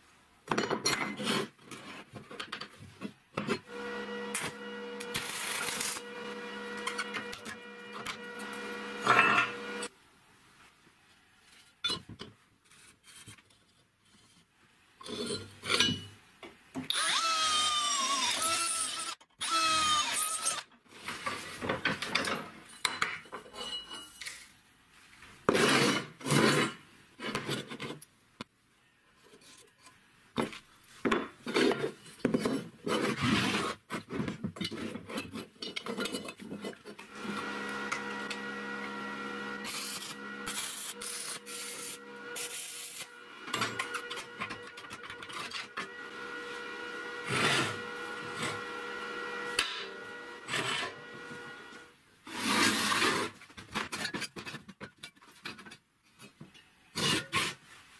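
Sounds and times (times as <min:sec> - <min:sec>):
steel parts scraping and knocking: 0:11.5 - 0:16.1, 0:33.9 - 0:37.1, 0:39.6 - 0:45.9.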